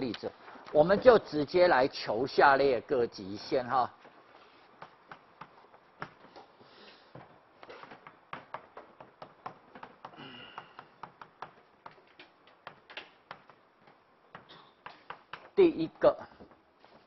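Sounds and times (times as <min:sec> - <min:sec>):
chalk tapping on blackboard: 0:04.4 - 0:06.5, 0:07.9 - 0:15.6.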